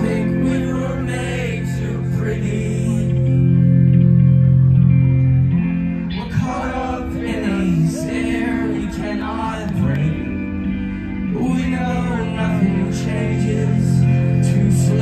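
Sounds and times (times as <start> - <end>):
man singing: 0.0 - 3.4, 6.1 - 10.4, 11.2 - 15.0
live rock band playing: 0.0 - 15.0.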